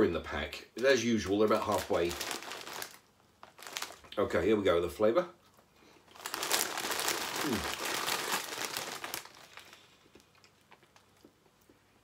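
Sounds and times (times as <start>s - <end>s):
crisp packet crinkling: 0.9s - 4.2s, 6.0s - 11.2s.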